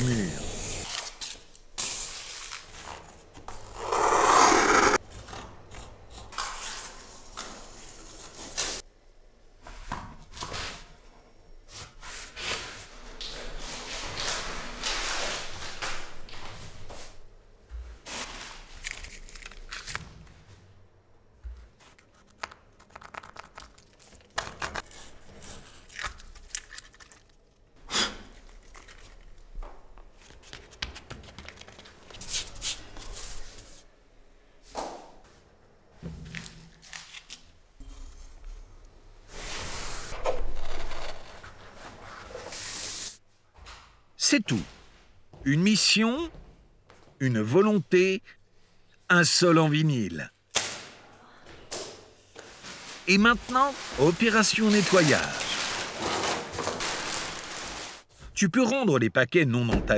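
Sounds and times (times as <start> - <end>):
backing paper tearing and crumpling: 18.1 - 20.0, 28.4 - 29.4, 40.4 - 42.0, 52.6 - 58.1
scraping and rustling: 52.4 - 58.1.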